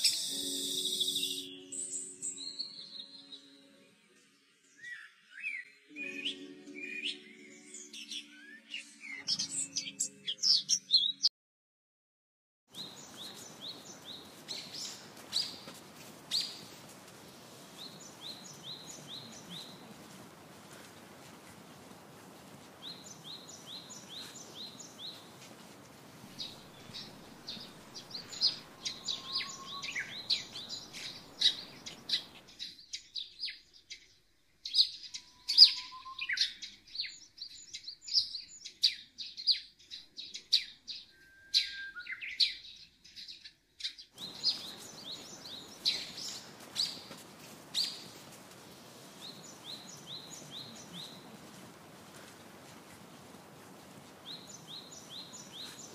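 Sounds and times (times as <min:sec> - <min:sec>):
songbirds chirping: 0:00.0 - 0:11.3, 0:12.7 - 0:55.9
faint background hiss: 0:12.8 - 0:33.3, 0:44.2 - 0:55.9.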